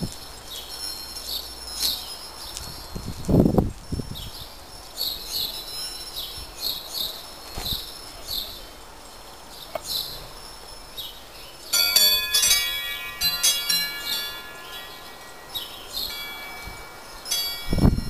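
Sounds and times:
wind chimes ringing: 11.7 - 18.0.

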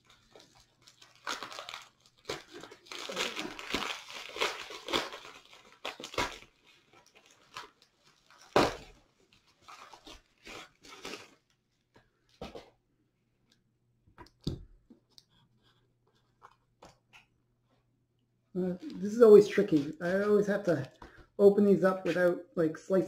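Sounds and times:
packing material crinkling and tearing: 0.0 - 11.6.

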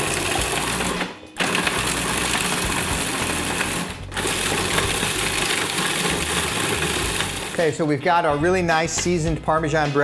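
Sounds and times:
food processor chopping bread: 0.0 - 7.6.

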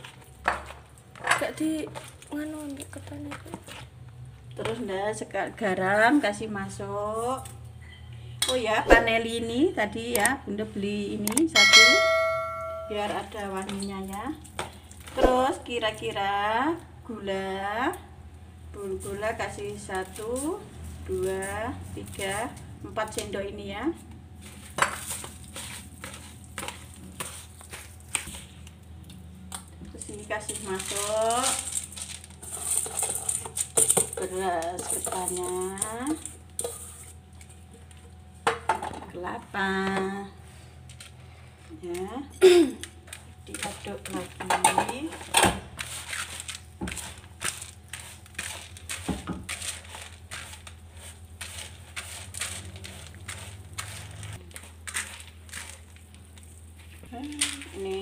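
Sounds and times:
hands squeezing rice crunching: 24.4 - 29.7, 45.8 - 58.0.

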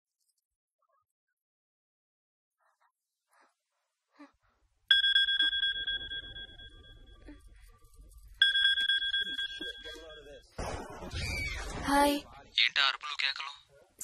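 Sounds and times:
mobile phone ringing: 4.9 - 7.3, 8.4 - 10.5.

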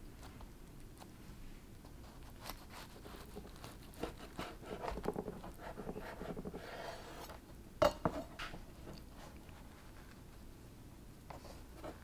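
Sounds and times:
knife sawing through bread: 2.4 - 7.2.

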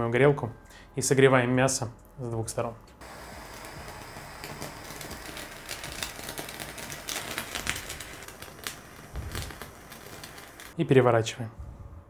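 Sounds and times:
fat crackling and spitting: 3.0 - 10.8
kitchen torch hissing: 3.0 - 10.8.

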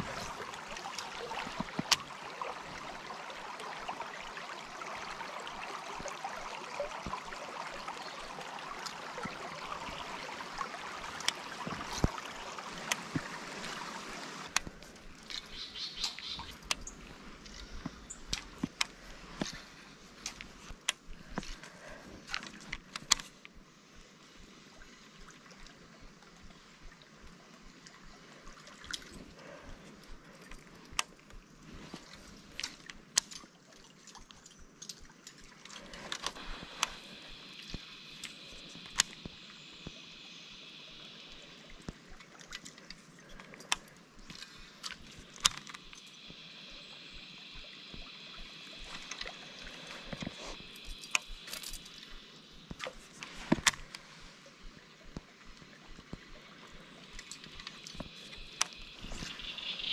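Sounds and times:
creek water trickling: 0.0 - 59.9.

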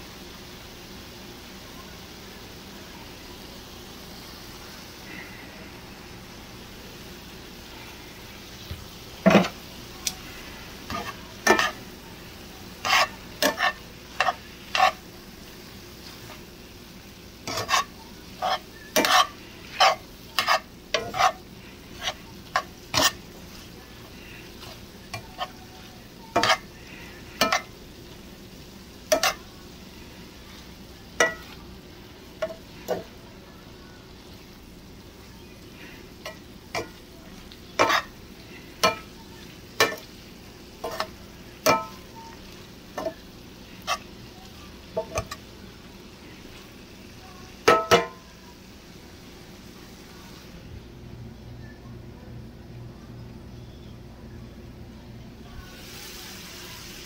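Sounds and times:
food sizzling in frying pan: 0.0 - 51.2, 55.3 - 57.0
metal tongs clacking on skillet: 10.9 - 11.8, 12.8 - 15.0, 17.4 - 23.2, 26.3 - 26.7, 27.4 - 27.8, 29.1 - 29.4, 31.2 - 31.6, 36.2 - 37.0, 37.8 - 38.1, 38.8 - 39.1, 39.8 - 40.1, 40.8 - 43.2, 45.0 - 45.4, 47.6 - 48.2.

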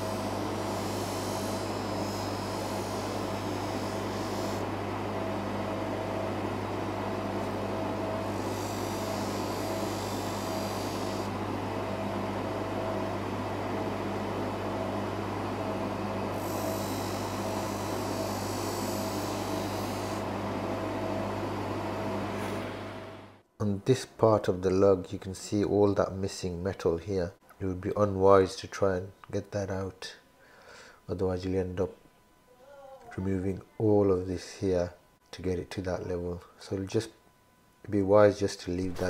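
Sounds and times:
polishing motor humming with whine: 0.0 - 23.4.

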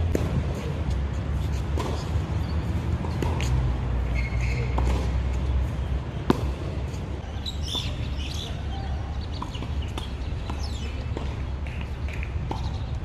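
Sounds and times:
tennis racket hitting ball: 0.0 - 0.7, 2.9 - 3.7, 6.2 - 7.0
birds chirping: 4.0 - 13.0.

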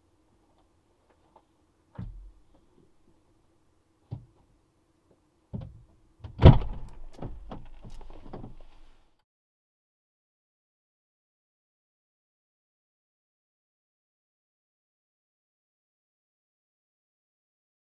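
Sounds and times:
rustling: 6.6 - 9.2.

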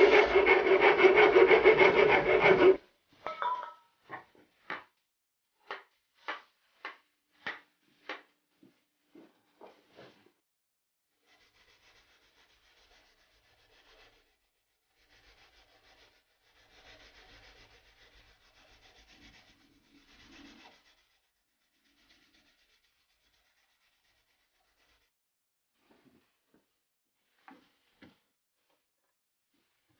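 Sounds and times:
sandpaper rasping on wood: 0.0 - 2.8, 11.2 - 25.1.

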